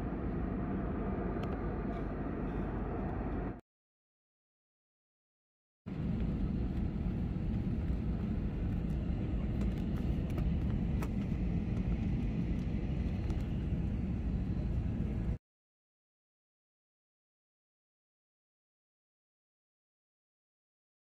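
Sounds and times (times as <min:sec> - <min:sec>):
jet engine rumble in cabin: 0:00.0 - 0:03.6, 0:05.9 - 0:15.4.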